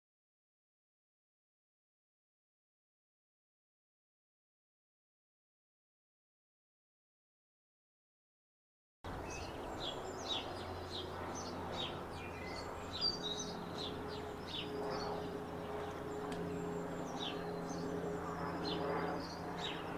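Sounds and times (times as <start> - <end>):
small birds chirping: 9.1 - 19.9.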